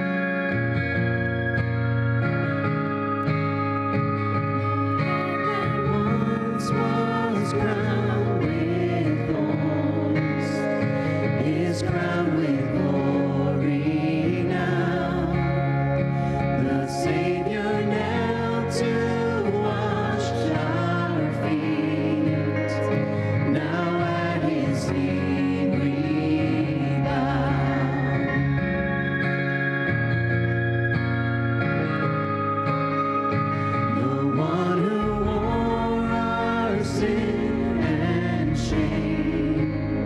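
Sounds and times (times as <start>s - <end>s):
acoustic guitar: 0.0s - 40.0s
singers singing together: 4.6s - 29.2s, 33.6s - 40.0s.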